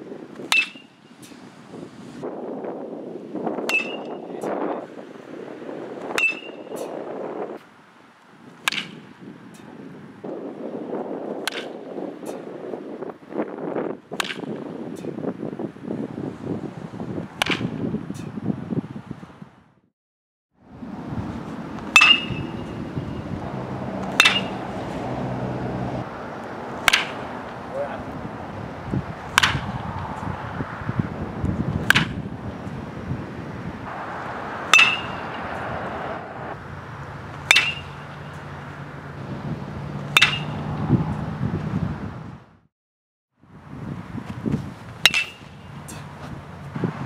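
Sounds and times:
metal bat hitting baseball: 0.5s - 0.9s, 3.6s - 4.2s, 6.1s - 6.8s, 8.6s - 9.1s, 11.4s - 11.8s, 14.2s - 14.6s, 17.4s - 17.8s, 21.8s - 23.1s, 24.0s - 25.0s, 26.8s - 27.3s, 29.3s - 29.8s, 31.8s - 32.2s, 34.6s - 35.6s, 37.4s - 38.5s, 40.1s - 40.8s, 45.0s - 45.7s.

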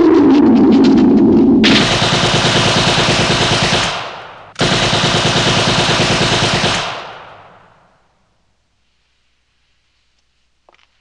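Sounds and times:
machine-gun fire: 1.6s - 8.0s.

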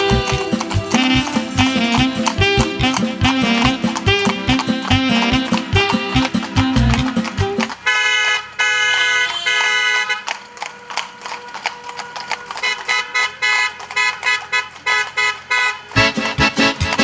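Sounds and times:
music with a quick beat: 0.0s - 7.7s, 16.0s - 17.0s
car horns honking: 0.0s - 17.0s.

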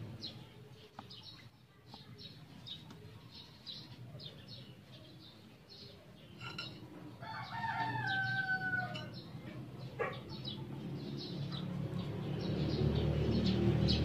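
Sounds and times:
small birds chirping: 0.0s - 14.0s
rooster crowing: 7.2s - 9.2s.

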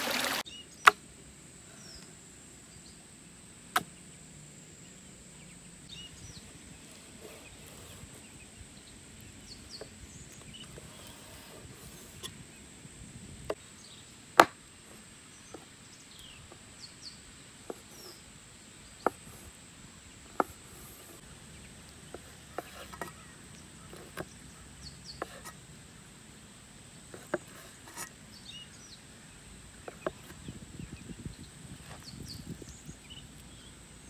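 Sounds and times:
cleaver chopping on wooden board: 14.4s - 14.6s.

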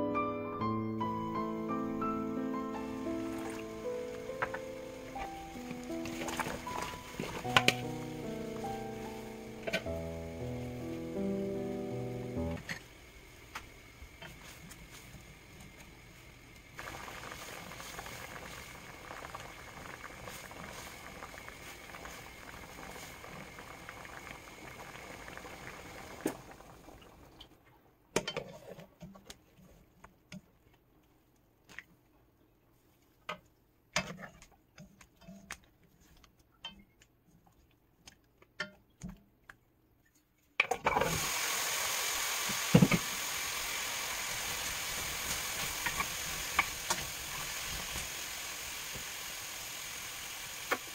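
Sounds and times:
food sizzling in a hot pan: 2.7s - 15.6s, 16.7s - 26.8s, 41.0s - 50.9s
water boiling in a pan: 2.7s - 29.7s, 40.6s - 50.9s.

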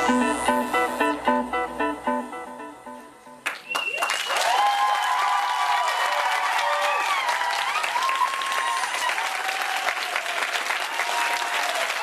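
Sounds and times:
audience clapping: 3.4s - 12.0s
voices cheering: 4.0s - 12.0s.

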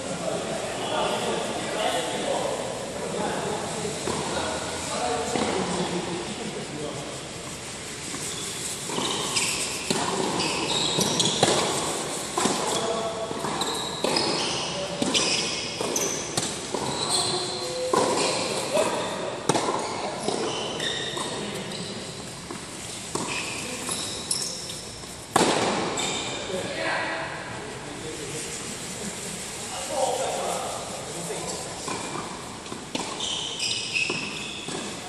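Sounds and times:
tennis balls hit with rackets: 8.0s - 26.4s, 31.9s - 35.0s
tennis balls bouncing on court: 8.1s - 26.4s, 31.9s - 35.0s.

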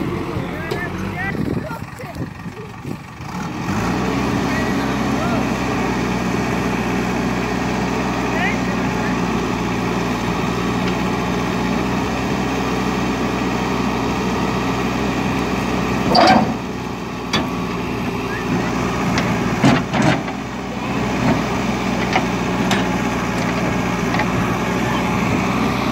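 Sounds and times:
diesel engine under load: 0.0s - 25.9s
metal clanks and knocks: 16.1s - 16.6s, 19.1s - 20.4s, 21.2s - 24.4s.

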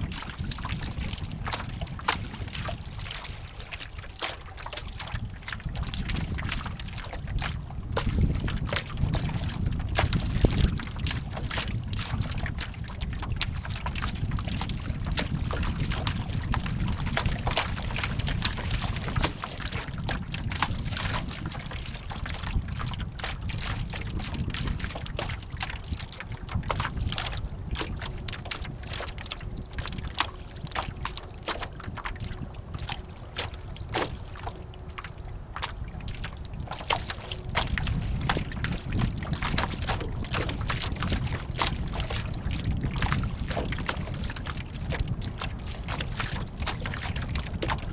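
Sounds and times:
water slapping against hull: 0.0s - 47.9s
wind buffeting microphone: 0.0s - 47.9s.

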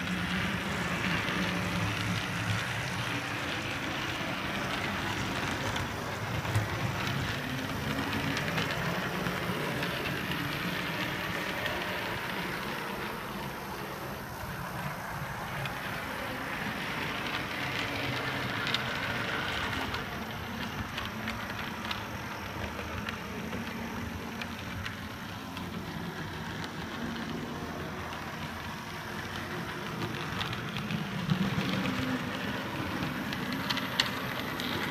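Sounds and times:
model train rattling on track: 0.0s - 34.9s.

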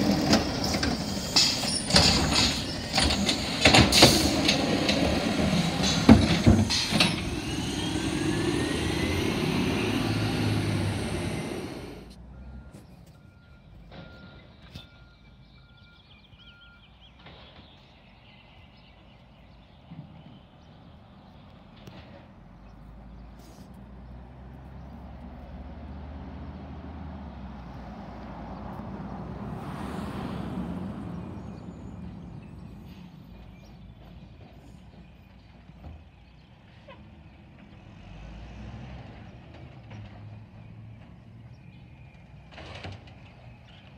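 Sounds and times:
garbage truck engine rumble: 0.0s - 15.9s
backup alarm beeps: 12.3s - 17.0s.

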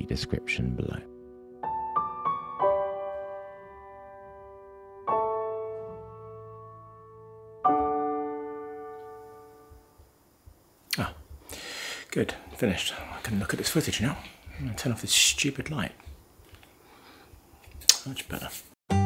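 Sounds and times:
soft piano music: 0.0s - 10.4s.

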